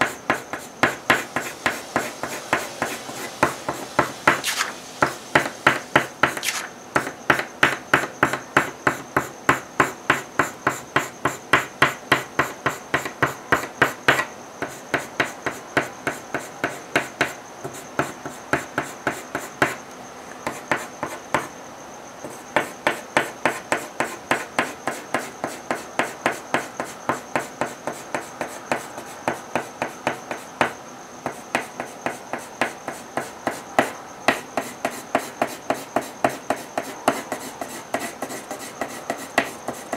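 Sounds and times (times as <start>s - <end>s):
drawing tool scratching on paper: 0.0s - 4.8s, 5.4s - 6.7s, 34.6s - 39.9s.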